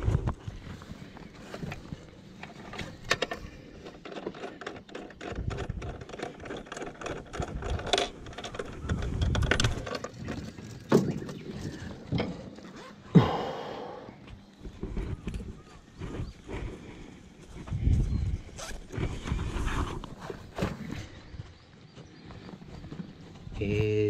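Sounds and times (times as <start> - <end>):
handling clicks and rustles: 0.0 - 13.1.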